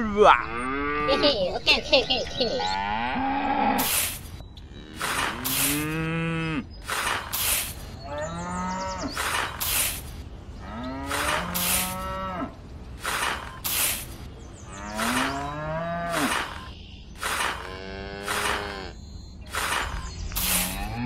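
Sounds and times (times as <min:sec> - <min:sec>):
cow mooing: 0:00.4 - 0:01.2, 0:02.7 - 0:03.9, 0:04.7 - 0:06.7, 0:08.1 - 0:09.2, 0:10.6 - 0:12.6, 0:14.7 - 0:19.0, 0:20.4 - 0:21.0
rhythmic hiss bursts: 0:05.0 - 0:05.9, 0:06.8 - 0:07.9, 0:09.2 - 0:10.2, 0:11.1 - 0:12.0, 0:12.9 - 0:14.3, 0:16.2 - 0:18.7, 0:19.5 - 0:20.9.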